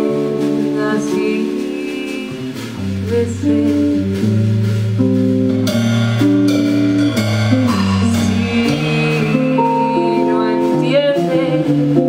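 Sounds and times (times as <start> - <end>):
drum kit and cymbals: 0.0 - 12.0
electric guitar: 0.0 - 12.0
woman singing: 0.6 - 4.2, 7.6 - 12.0.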